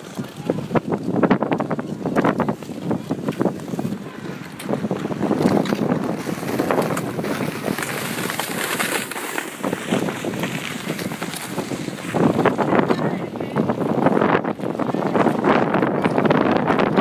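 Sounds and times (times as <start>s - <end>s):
wind on microphone: 0.0s - 17.0s
ice skate blades scraping: 2.2s - 13.1s.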